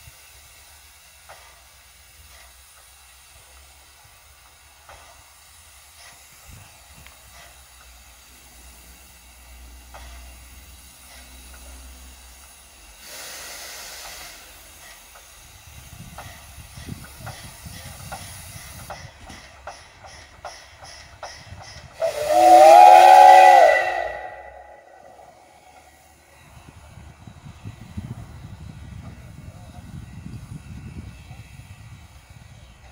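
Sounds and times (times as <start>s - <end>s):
steam blast: 0.0s - 19.2s, 21.9s - 26.3s
steam hissing: 0.0s - 32.9s
locomotive chuffing: 0.1s - 30.0s.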